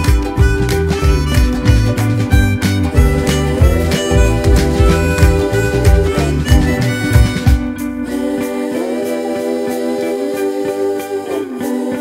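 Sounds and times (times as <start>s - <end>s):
sustained instrumental notes: 0.2s - 11.9s
drum beat: 1.2s - 7.7s.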